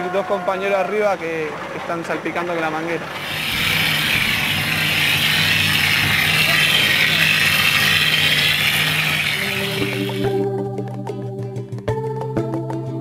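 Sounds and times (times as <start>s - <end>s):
air and mortar spraying hiss: 3.2s - 10.3s.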